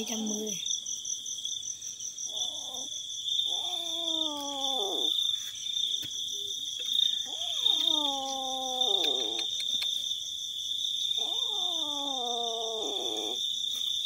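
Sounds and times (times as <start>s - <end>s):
crickets chirring: 0.0s - 14.0s
kitten yowling: 3.5s - 5.2s, 7.2s - 9.5s, 11.2s - 13.4s.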